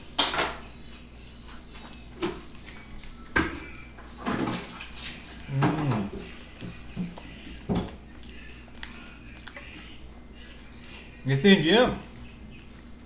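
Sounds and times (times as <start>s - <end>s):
chewing: 5.1s - 10.0s.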